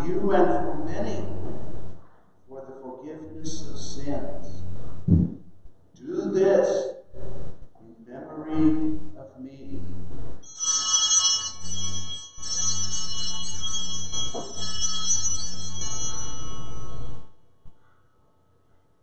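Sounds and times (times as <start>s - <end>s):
altar bells ringing: 10.4s - 17.4s.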